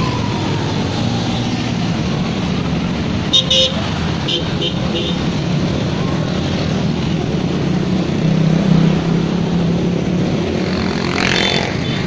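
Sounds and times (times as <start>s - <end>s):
motorcycle engines passing: 0.0s - 12.0s.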